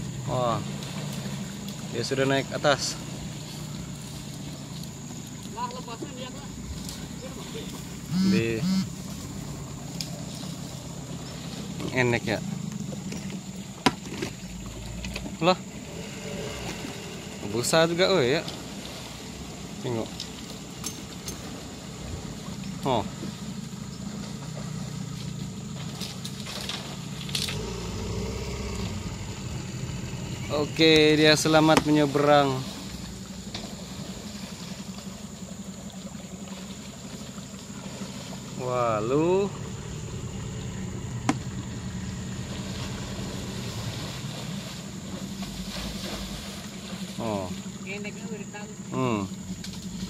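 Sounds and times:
boat engine idling: 0.0s - 50.0s.

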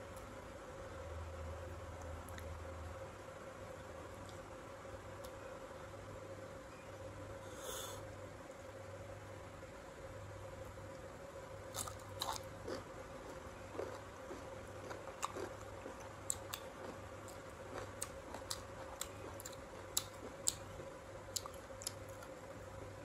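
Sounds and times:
person chewing crunchy fruit: 11.7s - 22.5s.

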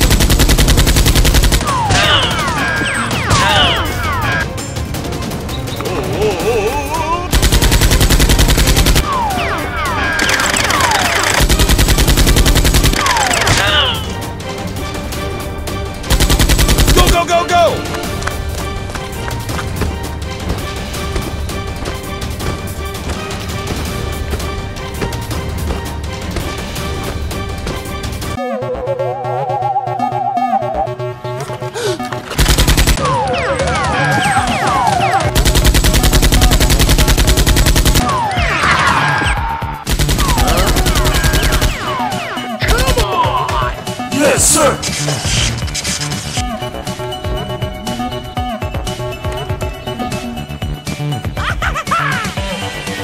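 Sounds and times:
automatic gunfire: 0.0s - 2.0s, 7.3s - 9.0s, 10.2s - 13.8s, 16.1s - 17.3s, 32.4s - 38.2s, 39.9s - 41.9s
background music: 0.0s - 53.0s.

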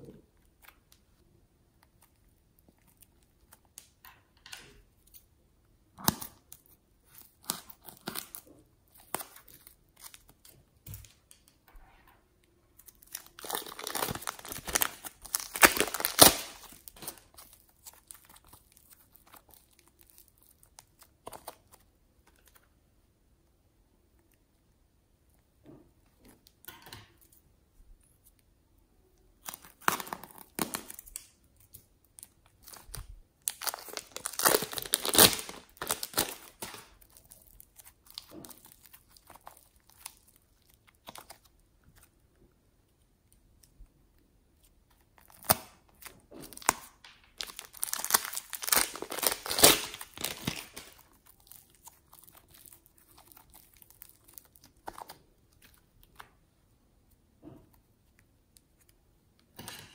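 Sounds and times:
plastic bag crinkling: 12.8s - 22.6s, 32.2s - 41.5s, 45.2s - 56.2s.

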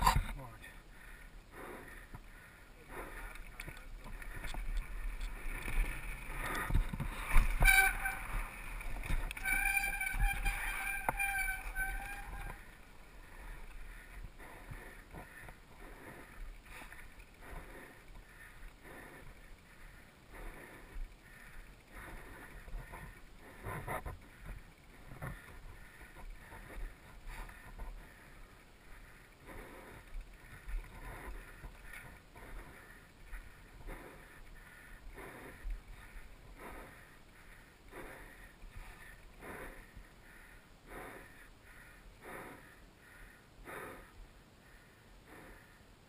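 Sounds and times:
bike tyres rolling over dirt: 2.9s - 35.1s
bike rattling and knocking: 3.4s - 15.8s.

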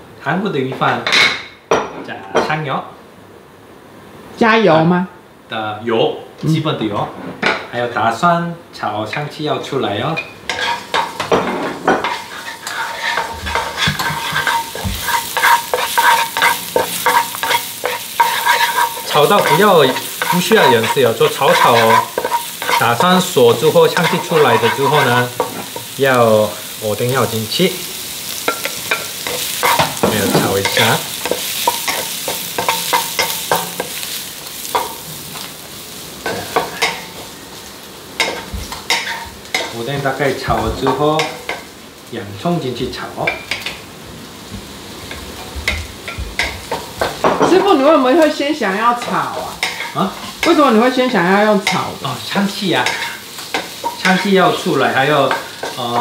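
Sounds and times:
garlic sizzling in hot oil: 7.8s - 56.0s
utensil scraping and tapping pan: 10.2s - 25.9s, 28.5s - 34.0s.

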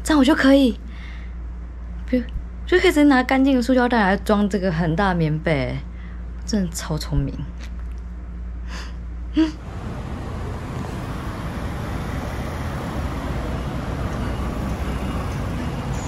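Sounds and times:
street traffic rumble: 9.5s - 16.0s.

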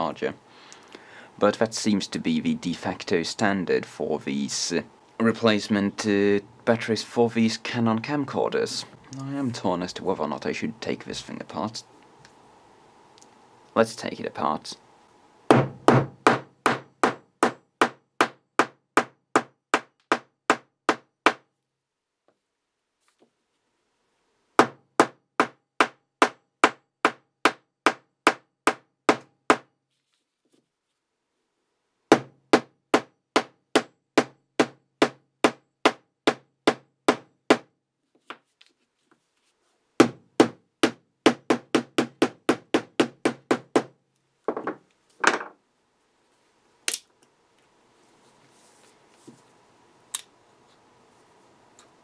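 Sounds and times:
pliers knocking on plastic case: 44.5s - 45.6s.

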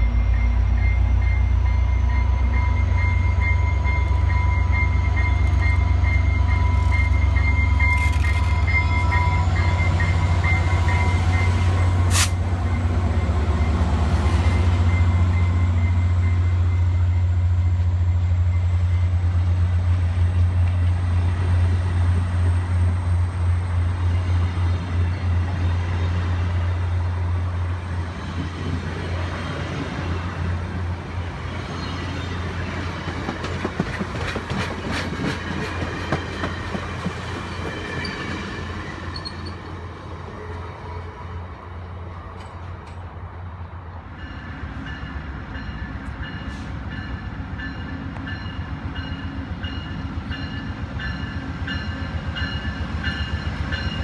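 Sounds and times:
train wheels beating on rails: 0.0s - 39.7s
diesel locomotive engine rumble: 0.0s - 54.0s.

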